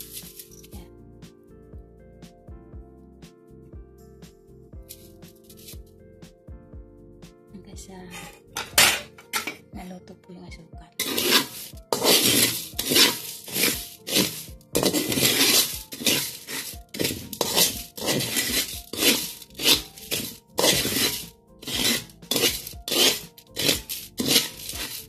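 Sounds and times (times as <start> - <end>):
spatula scraping rice in pan: 0.0 - 0.7, 4.9 - 5.8, 11.0 - 25.0.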